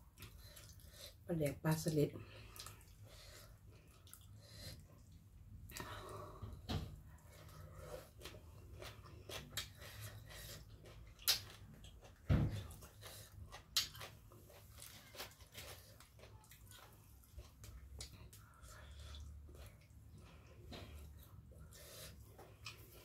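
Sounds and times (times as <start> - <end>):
person chewing: 0.0 - 1.2, 2.3 - 6.3, 7.1 - 23.0
wet mouth clicks and smacks: 11.2 - 11.6.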